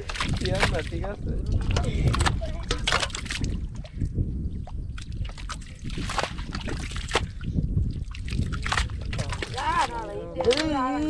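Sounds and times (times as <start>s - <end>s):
sharp wet splashes: 0.0s - 1.0s, 4.7s - 10.8s
muddy water sloshing: 0.0s - 11.0s.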